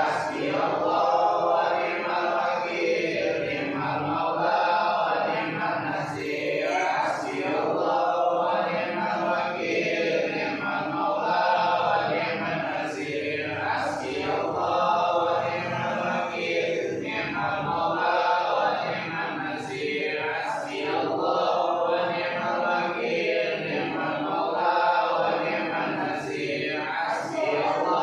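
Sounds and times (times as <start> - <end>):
men chanting prayers in unison: 0.0 - 28.0.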